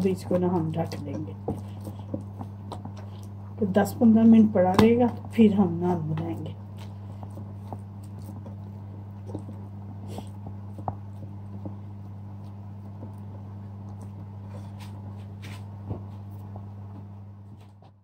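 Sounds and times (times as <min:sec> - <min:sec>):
hands kneading wet dough: 0:00.0 - 0:17.9
steady low hum: 0:00.0 - 0:18.0.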